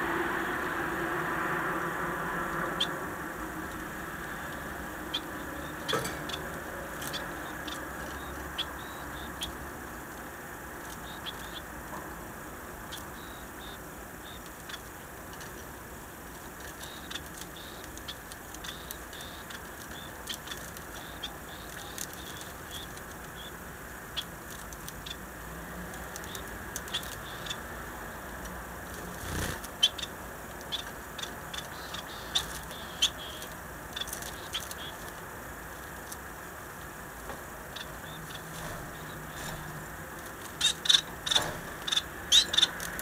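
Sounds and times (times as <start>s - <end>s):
finches soft calls: 3.7s - 9.7s, 10.8s - 11.7s, 12.8s - 14.9s, 16.6s - 24.3s, 29.0s - 35.1s, 37.6s - 43.0s
wings fluttering: 28.8s - 30.0s, 38.2s - 43.0s.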